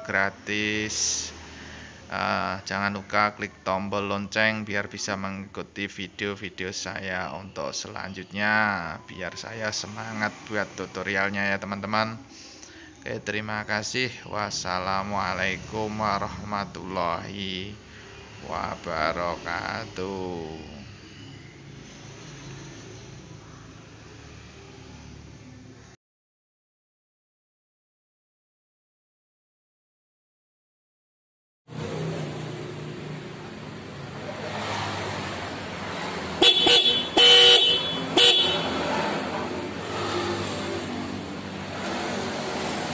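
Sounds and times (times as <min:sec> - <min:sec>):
motorcycle horn toots: 0:36.4 - 0:39.5.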